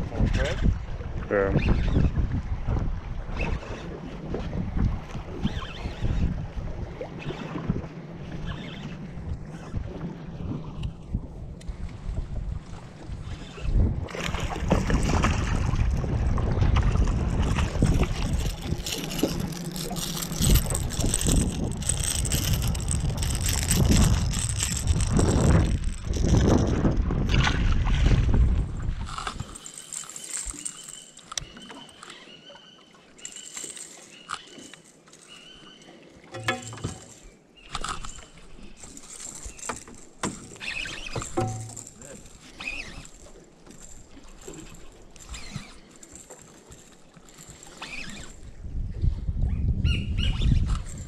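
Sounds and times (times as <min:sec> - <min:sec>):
wind buffeting microphone: 0:00.0 - 0:29.7, 0:47.2 - 0:51.0
small boat noise: 0:00.0 - 0:51.0.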